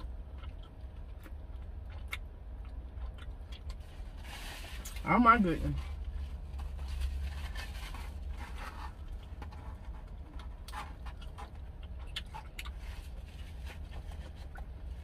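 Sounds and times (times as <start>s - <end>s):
biting and chewing: 0.0s - 4.2s, 6.0s - 15.0s
steady low hum: 0.0s - 15.0s.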